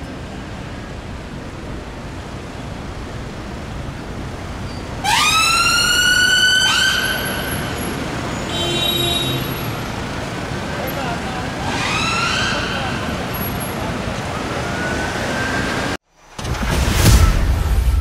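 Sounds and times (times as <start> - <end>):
street traffic: 0.0 - 18.0
ambulance siren whooping: 5.0 - 8.2, 11.4 - 16.0.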